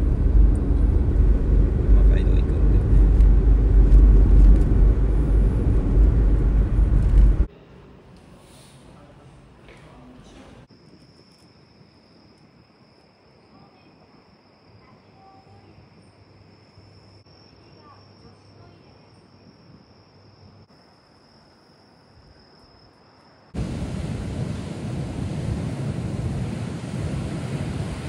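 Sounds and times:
insects trilling: 10.7 - 23.6.

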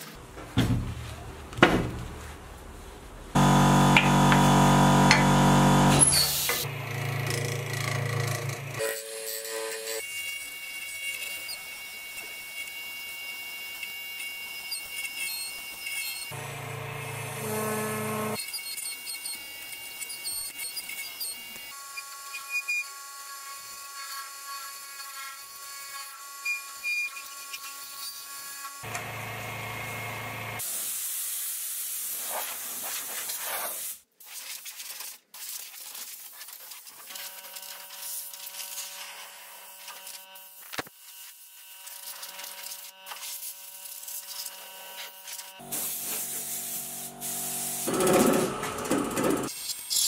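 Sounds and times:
wood lathe whine: 3.4 - 20.3, 28.8 - 30.6
turning tool cutting wood: 3.4 - 30.6, 37.1 - 50.0.

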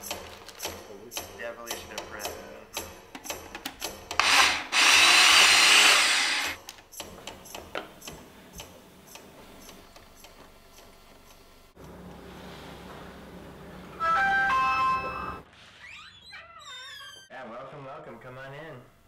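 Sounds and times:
blender motor running: 4.2 - 6.6.

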